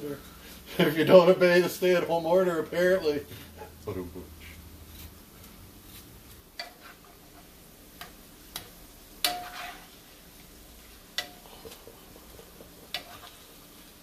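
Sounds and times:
potato slices sizzling in oil: 0:04.4 - 0:14.0
metal tongs clicking on pan: 0:08.0 - 0:09.5, 0:11.2 - 0:11.4, 0:12.9 - 0:13.2.

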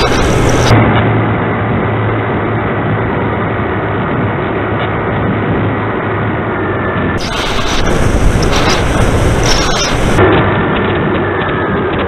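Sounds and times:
model plane motor drone: 0:00.0 - 0:00.7
wind rush: 0:00.0 - 0:12.0.

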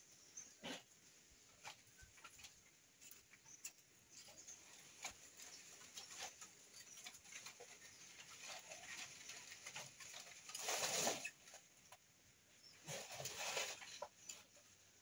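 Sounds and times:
loud noisy rustle: 0:07.2 - 0:11.6.

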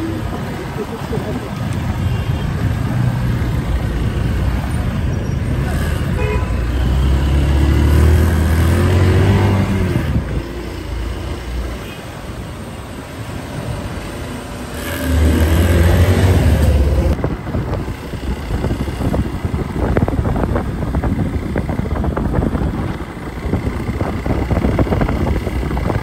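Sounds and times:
street traffic: 0:00.0 - 0:26.0
motorcycle engine: 0:13.8 - 0:26.0.

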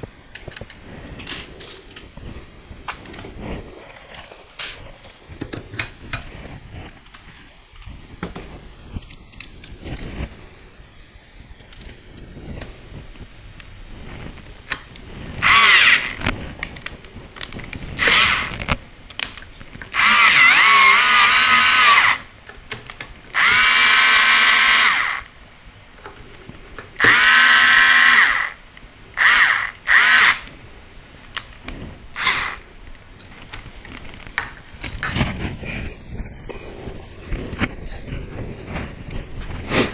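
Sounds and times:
electric screwdriver whining: 0:15.4 - 0:16.3, 0:18.0 - 0:18.7, 0:19.9 - 0:22.3, 0:23.4 - 0:25.3, 0:27.0 - 0:28.6, 0:29.2 - 0:30.5, 0:32.2 - 0:32.6.

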